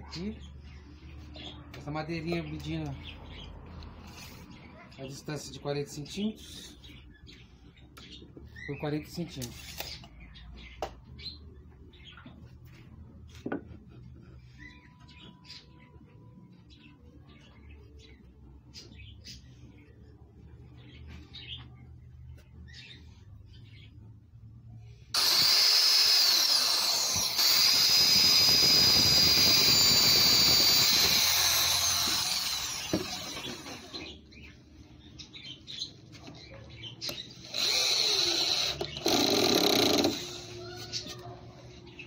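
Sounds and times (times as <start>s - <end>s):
drill driving screw: 25.2s - 34.1s, 37.1s - 40.6s
electric drill boring into wood: 25.2s - 34.2s, 37.1s - 40.6s.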